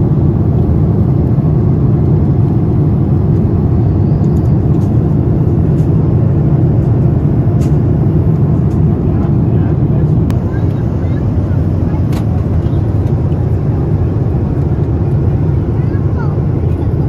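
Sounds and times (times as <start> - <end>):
airplane cabin engine roar: 0.0 - 17.0.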